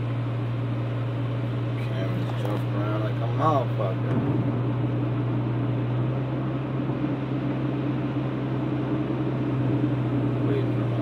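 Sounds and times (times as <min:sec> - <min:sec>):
car engine hum: 0:00.0 - 0:11.0.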